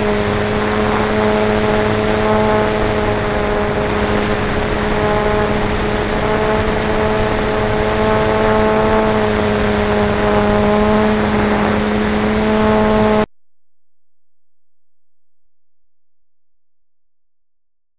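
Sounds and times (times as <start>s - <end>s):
electric motor and propeller whining: 0.0s - 13.3s
wind rushing over microphone: 0.0s - 13.3s.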